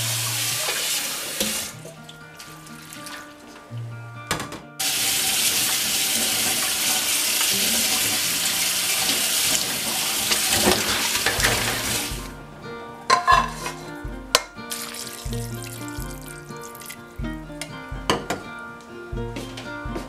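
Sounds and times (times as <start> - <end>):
tap water running into colander: 0.0 - 3.5, 4.8 - 12.3, 14.3 - 17.0
soft background music: 0.0 - 20.0
metal colander clinking on pot: 13.1 - 13.8.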